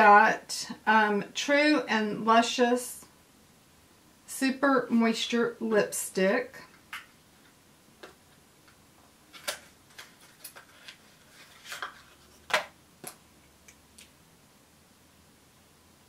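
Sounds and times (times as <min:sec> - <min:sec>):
packaging rustle: 0:09.3 - 0:13.2.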